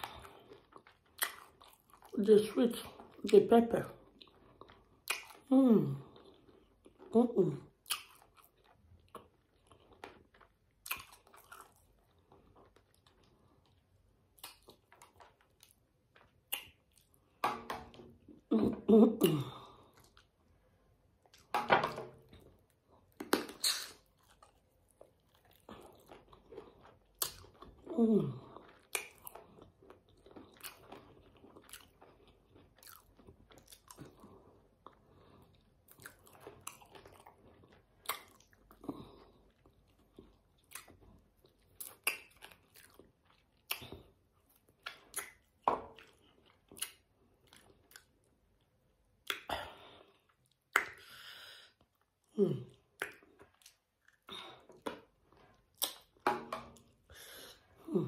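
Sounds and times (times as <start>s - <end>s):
chewing and biting: 0.0s - 2.2s, 7.8s - 17.4s, 22.3s - 48.6s, 52.7s - 57.0s.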